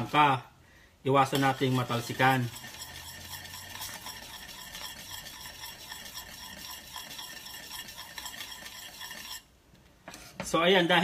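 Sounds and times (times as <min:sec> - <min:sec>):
spoon stirring in a steel pan: 0:01.1 - 0:09.6.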